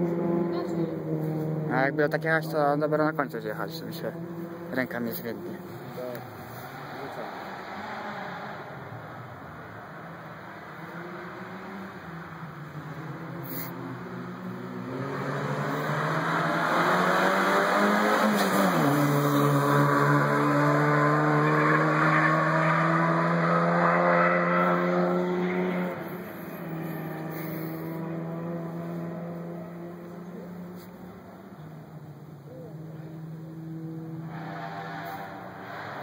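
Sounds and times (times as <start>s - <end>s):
racing car accelerating uphill: 0.0s - 36.0s.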